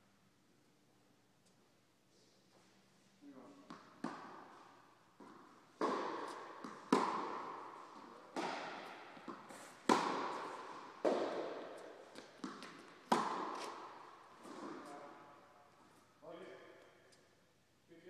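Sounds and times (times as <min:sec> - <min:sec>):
ball bouncing on hard court: 0:03.7 - 0:15.2
tennis balls struck by rackets: 0:03.7 - 0:15.4.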